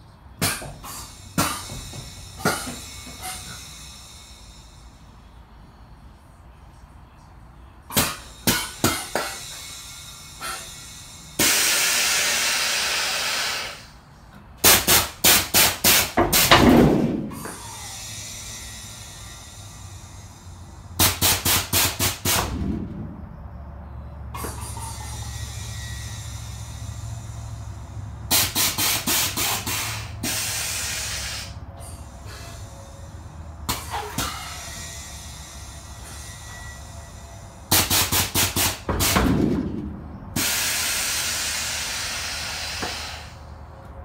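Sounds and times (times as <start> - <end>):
air suspension hissing bursts: 0.3 - 6.1, 7.8 - 43.7.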